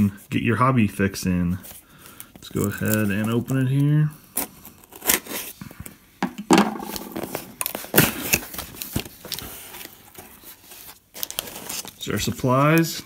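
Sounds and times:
scissors slitting packing tape: 4.4s - 5.5s.

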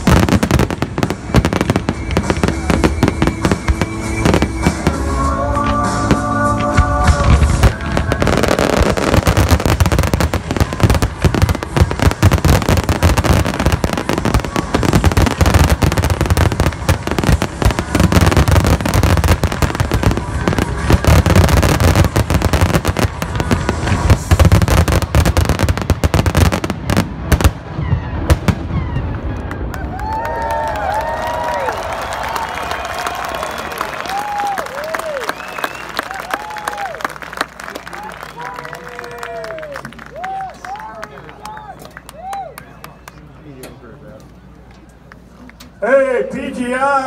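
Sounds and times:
fireworks bursting: 0.0s - 29.7s.

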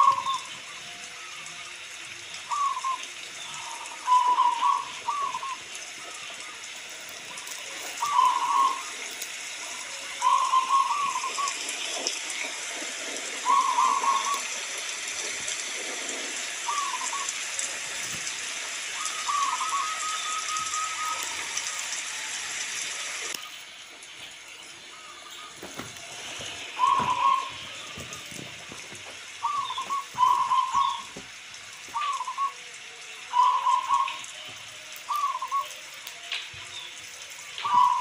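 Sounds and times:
dove cooing: 0.0s - 1.4s, 2.4s - 6.5s, 7.3s - 11.7s, 13.2s - 14.6s, 16.5s - 18.0s, 19.0s - 21.8s, 24.9s - 35.8s, 37.5s - 38.0s
rain hissing: 0.0s - 38.0s.

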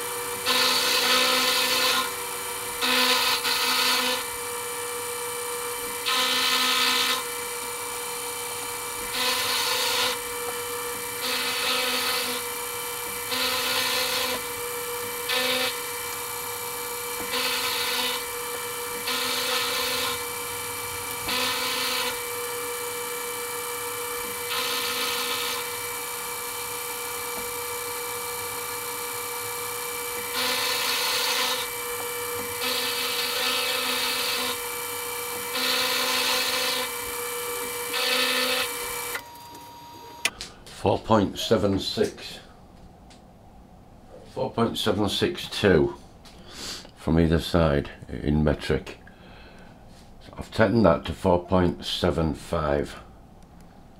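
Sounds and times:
rasping cutting bursts: 0.0s - 40.3s
milling machine hum: 0.0s - 40.4s.

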